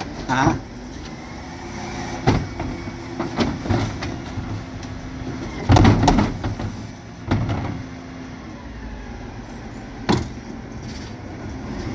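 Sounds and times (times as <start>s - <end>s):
truck engine and hydraulics hum: 0.0s - 11.9s
bin banging into hopper: 5.6s - 7.8s.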